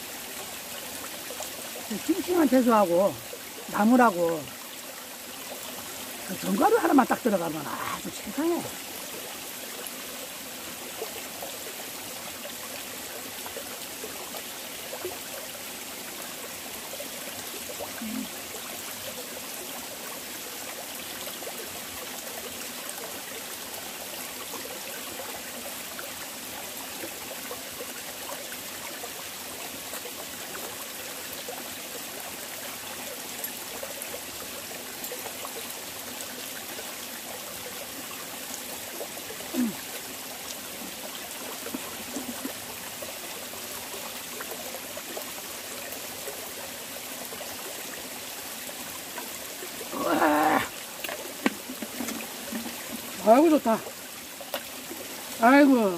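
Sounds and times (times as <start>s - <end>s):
stream running over rocks: 0.0s - 55.9s.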